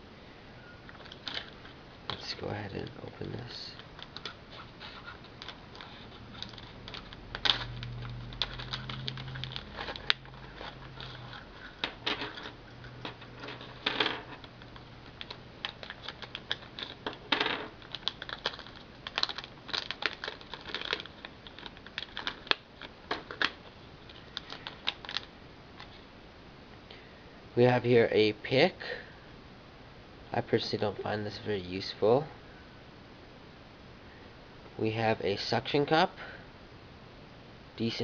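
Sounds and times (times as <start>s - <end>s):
packaging being opened: 0.9s - 2.2s, 3.7s - 26.0s
small tools clicking and rattling: 5.2s - 23.5s.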